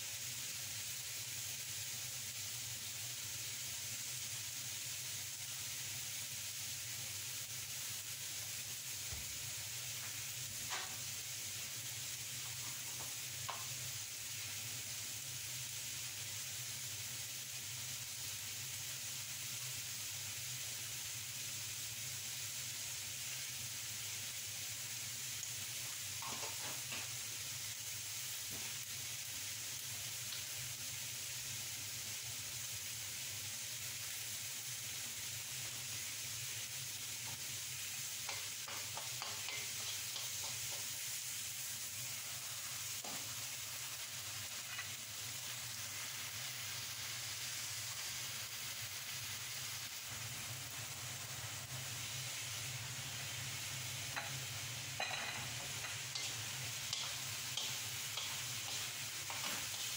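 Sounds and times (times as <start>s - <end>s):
vegetables sizzling in a wok: 0.0s - 59.9s
wooden spatula scraping a pan: 55.3s - 59.9s.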